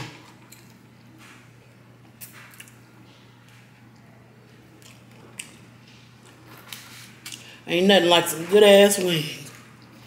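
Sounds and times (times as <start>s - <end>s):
wet mouth eating sounds: 2.2s - 7.5s.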